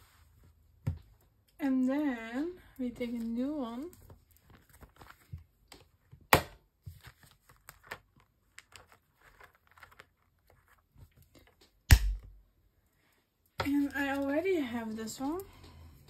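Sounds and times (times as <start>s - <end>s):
plastic sleeve crinkling: 3.1s - 6.1s, 6.8s - 11.7s.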